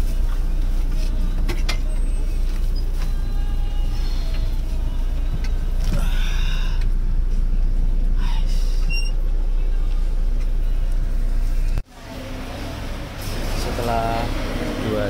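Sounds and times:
bus body clicks and creaks: 0.0s - 3.4s, 4.2s - 7.4s
bus engine rumble: 0.0s - 15.0s.

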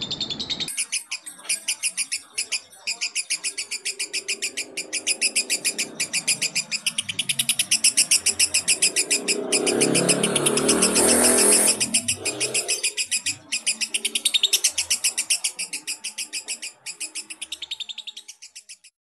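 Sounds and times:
lovebird chattering: 0.0s - 19.0s.

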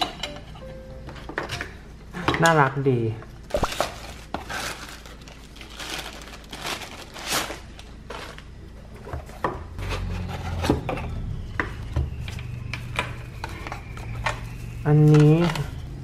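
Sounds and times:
plastic bag rustling: 3.5s - 10.2s.

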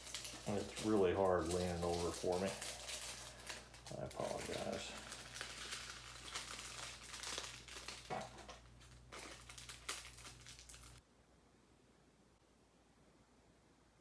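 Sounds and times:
plastic bags crinkling: 0.0s - 11.0s.

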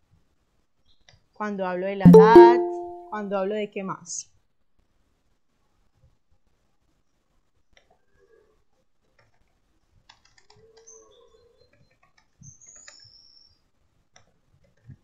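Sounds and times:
faint high chirps: 2.1s - 3.1s.

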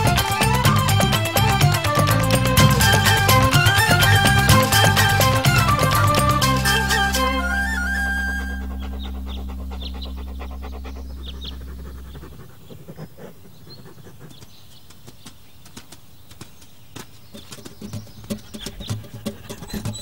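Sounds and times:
background music: 0.0s - 11.2s
small bird chirps: 8.4s - 20.0s.

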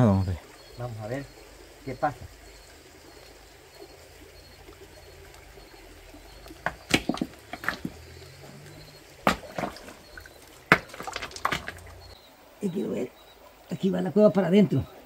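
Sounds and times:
creek water running: 0.0s - 15.0s
river stones knocking: 6.3s - 12.2s.

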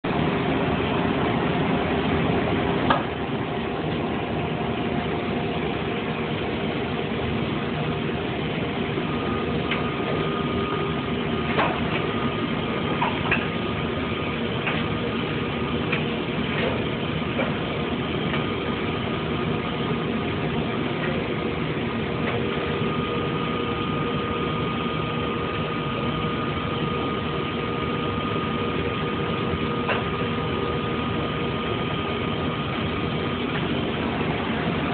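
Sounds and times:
industrial machinery humming: 0.0s - 34.9s
sharp clicks and knocks: 14.6s - 14.9s.

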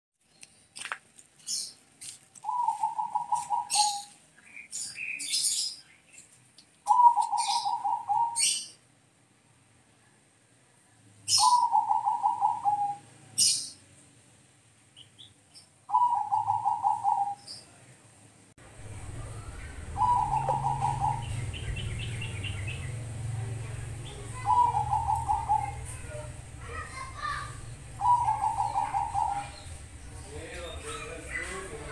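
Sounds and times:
small birds chirping: 0.2s - 8.9s, 11.2s - 14.0s, 14.8s - 18.0s, 18.6s - 31.9s
dove cooing: 2.4s - 4.2s, 6.9s - 8.6s, 11.3s - 13.0s, 15.9s - 17.4s, 18.7s - 31.9s.

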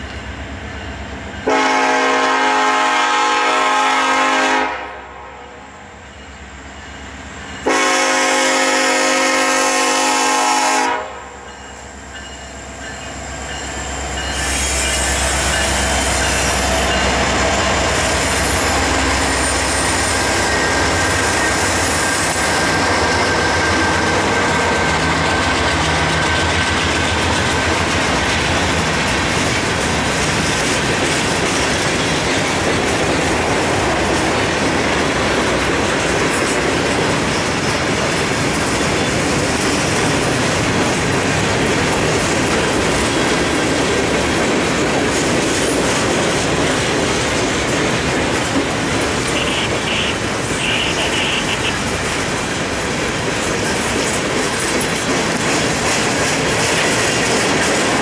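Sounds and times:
train air horn blasts: 1.4s - 5.7s, 7.6s - 11.5s, 49.2s - 51.9s
diesel locomotive rumble: 5.9s - 58.0s.

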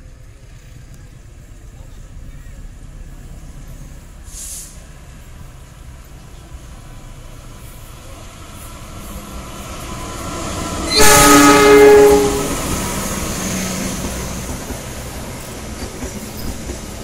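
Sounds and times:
train rumble: 0.0s - 17.0s
locomotive horn blast: 10.9s - 12.7s.

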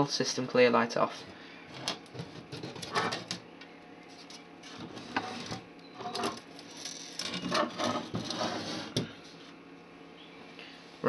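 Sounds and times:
rubbing and scraping: 1.7s - 3.4s, 4.1s - 9.5s.

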